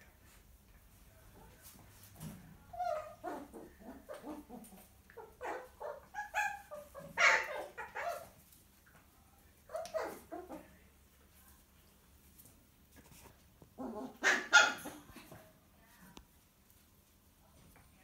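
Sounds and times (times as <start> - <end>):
puppy yelping and squealing: 2.7 - 4.5, 5.2 - 8.3, 13.8 - 15.0.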